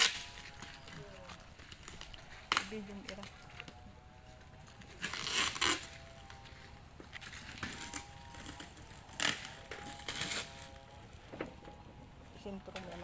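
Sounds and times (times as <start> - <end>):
cardboard carton crunching open: 5.0 - 6.0.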